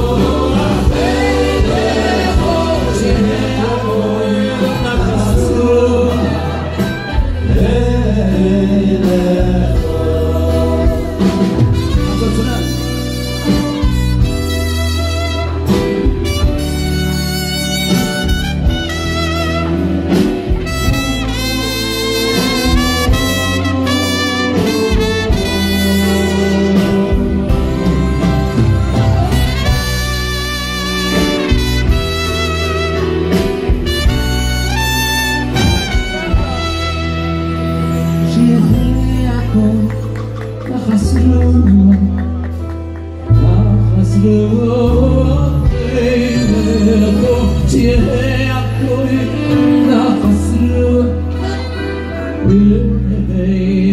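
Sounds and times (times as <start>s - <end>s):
man singing into a microphone: 0.0s - 13.5s, 20.6s - 28.6s, 35.7s - 42.5s, 43.2s - 53.9s
bass line: 0.0s - 53.9s
orchestra holding low chords: 0.0s - 53.9s
saxophones: 10.4s - 39.9s
trumpet playing long notes: 11.7s - 39.5s.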